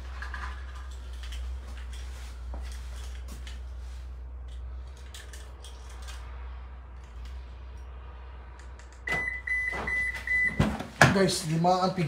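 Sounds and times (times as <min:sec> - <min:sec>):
phone and clothing handling rustles: 0:00.0 - 0:06.1.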